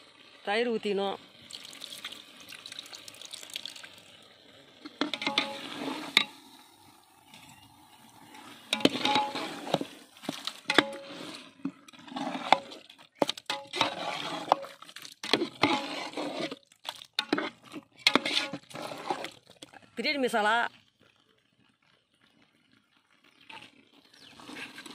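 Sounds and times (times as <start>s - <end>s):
metal spatula scraping metal pot: 4.9s - 6.5s, 7.3s - 19.8s.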